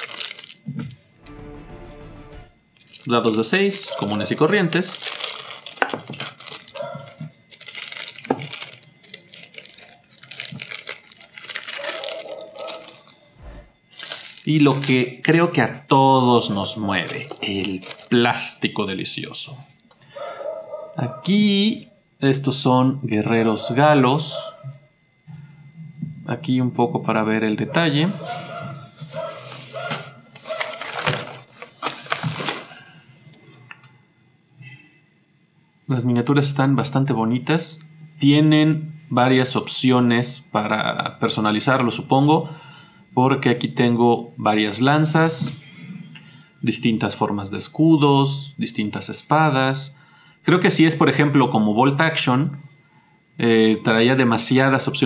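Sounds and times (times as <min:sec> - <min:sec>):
plastic bag crinkling: 0:00.0 - 0:00.9, 0:02.8 - 0:13.3, 0:13.9 - 0:15.3, 0:16.7 - 0:18.6, 0:30.4 - 0:33.0
plastic parts clattering: 0:00.0 - 0:01.0, 0:02.8 - 0:13.2, 0:13.9 - 0:15.1, 0:17.0 - 0:18.5, 0:30.4 - 0:32.9.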